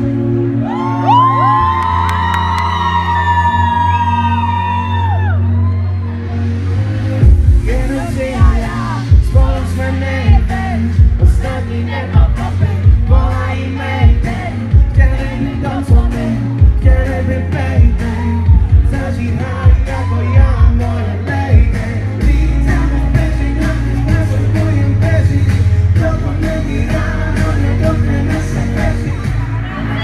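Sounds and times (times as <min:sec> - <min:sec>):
loud amplified pop music: 0:00.0 - 0:30.0
heavy bass drum beats: 0:07.2 - 0:30.0
man singing into a microphone: 0:07.6 - 0:30.0.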